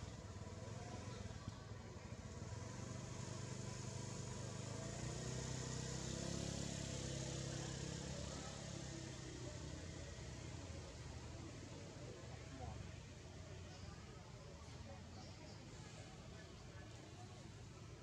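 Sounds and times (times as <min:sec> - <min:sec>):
engine humming: 0:00.0 - 0:12.4.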